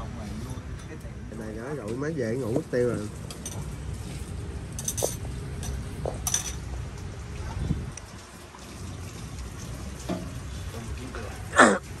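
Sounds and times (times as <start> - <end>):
bowls and utensils clinking: 3.2 - 3.8, 4.7 - 6.7.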